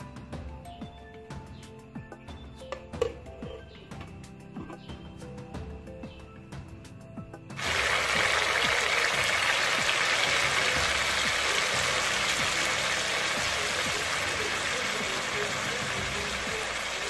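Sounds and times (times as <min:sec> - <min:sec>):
meat sizzling in a pan: 0:07.6 - 0:17.0.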